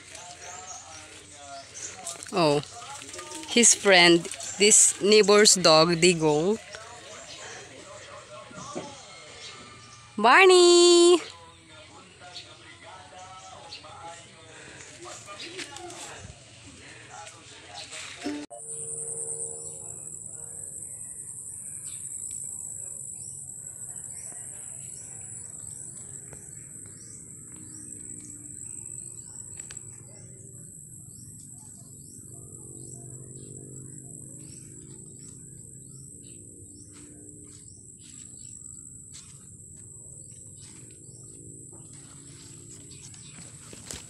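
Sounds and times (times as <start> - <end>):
high-pitched insect chorus: 18.6 - 44.0.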